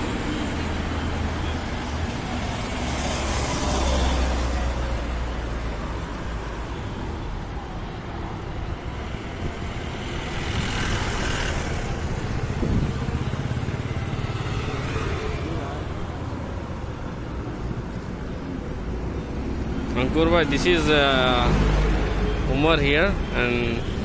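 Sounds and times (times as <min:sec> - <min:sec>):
bus engine passing: 0:00.0 - 0:24.0
highway traffic passing: 0:00.0 - 0:24.0.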